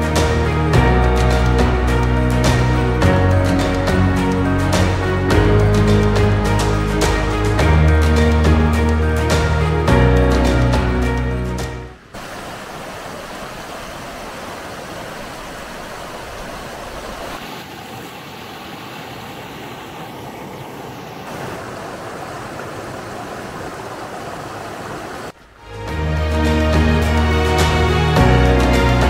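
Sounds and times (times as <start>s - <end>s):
background music: 0.0s - 12.0s, 25.6s - 29.0s
water rushing over rocks: 10.8s - 25.7s.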